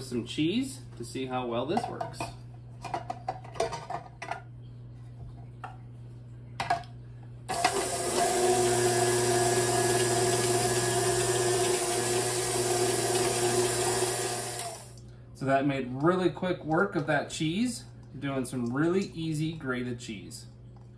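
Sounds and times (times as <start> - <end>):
stand mixer running: 7.5 - 15.0.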